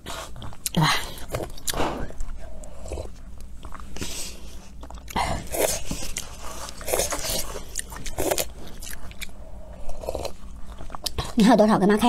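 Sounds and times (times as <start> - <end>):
chewing: 0.1 - 11.4
slurping noodle soup: 1.6 - 11.2.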